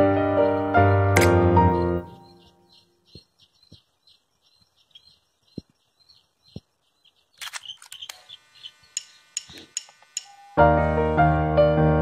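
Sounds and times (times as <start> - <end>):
sharp clicking chirps: 1.2 - 10.6.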